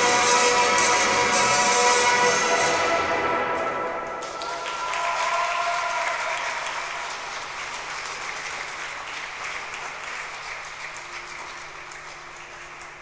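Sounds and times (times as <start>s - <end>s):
held music notes: 0.0s - 4.7s
audience applauding: 4.2s - 13.0s.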